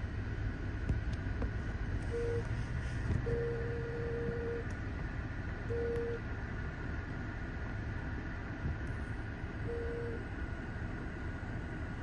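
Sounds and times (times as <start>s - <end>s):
faint jet engine whine: 0.0s - 12.0s
jet engines low rumble: 0.0s - 12.0s
electronic beep tone: 9.7s - 10.2s.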